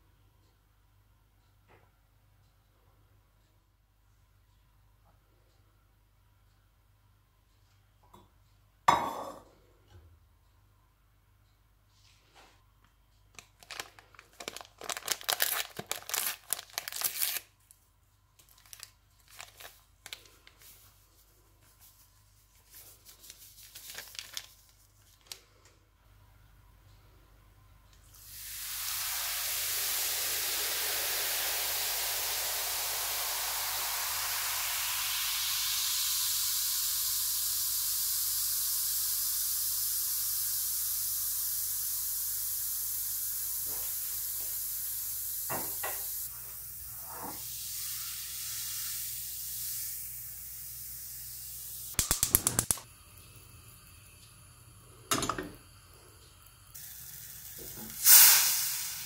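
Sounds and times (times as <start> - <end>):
vinegar and baking soda fizzing: 13.6 - 17.4, 28.0 - 59.0.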